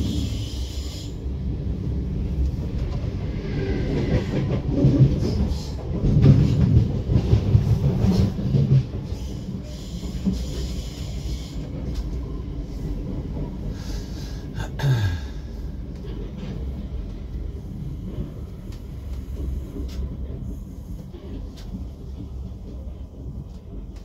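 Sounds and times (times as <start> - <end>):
passing train: 0.0 - 24.0
train rumbling: 0.0 - 24.0.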